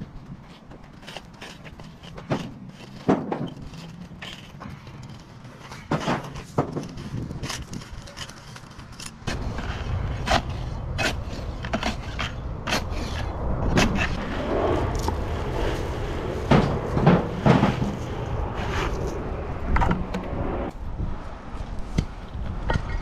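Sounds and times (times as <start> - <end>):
tools scraping on rubble: 0.3 - 19.2
steady low rumble: 9.2 - 23.0.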